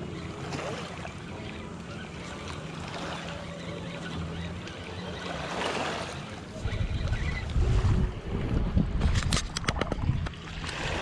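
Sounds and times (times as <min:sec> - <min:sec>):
small waves lapping rocks: 0:00.0 - 0:11.0
wind: 0:00.0 - 0:11.0
rumbling on microphone: 0:06.6 - 0:10.3.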